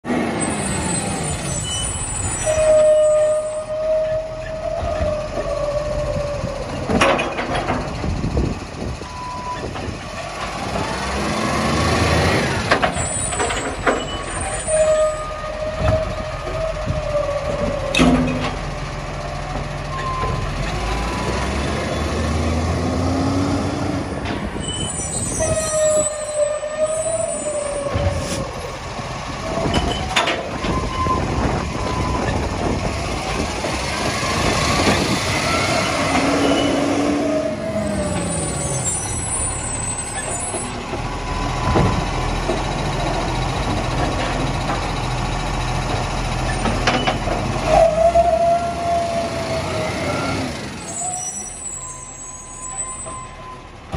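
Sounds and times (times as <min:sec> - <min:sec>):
mechanism squeals: 0:24.6 - 0:27.9, 0:50.8 - 0:53.6.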